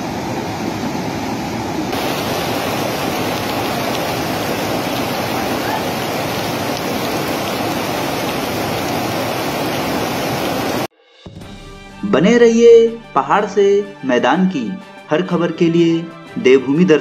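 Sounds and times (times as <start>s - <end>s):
flooding river rushing: 0.0s - 10.9s.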